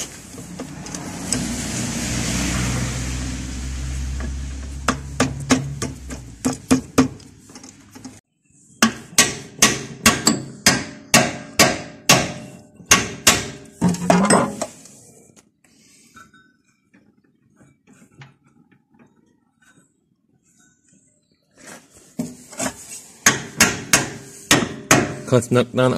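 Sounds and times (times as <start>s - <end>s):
hammer striking steel: 8.8s - 14.7s, 23.2s - 25.3s.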